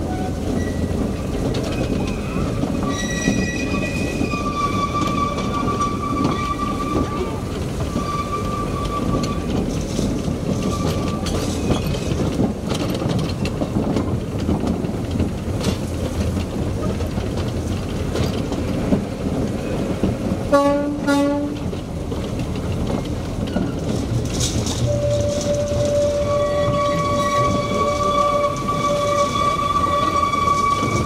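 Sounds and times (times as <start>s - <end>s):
locomotive rumbling on rails: 0.0s - 31.0s
train horn toots: 20.5s - 21.6s, 24.8s - 31.0s.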